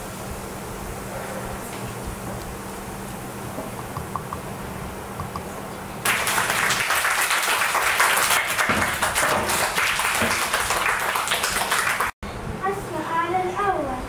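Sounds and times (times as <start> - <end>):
low steady hum: 0.0 - 6.6
boys clapping and applauding: 6.0 - 12.2.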